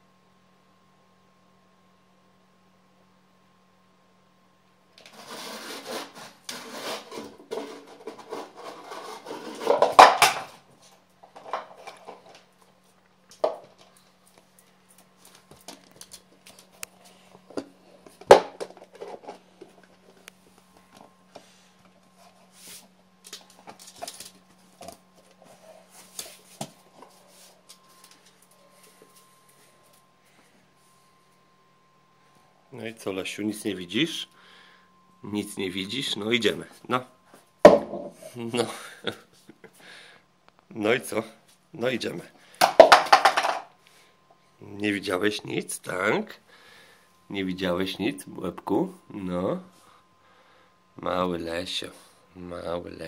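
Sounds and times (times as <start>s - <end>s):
plastic flowerpot scraping on tile: 5.0s - 10.0s.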